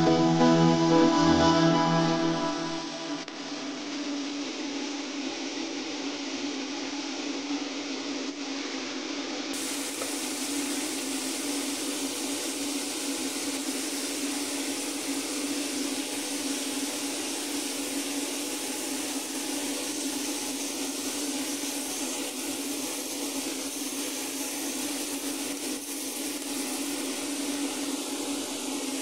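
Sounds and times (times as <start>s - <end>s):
chicken sizzling on a grill: 9.5s - 29.0s.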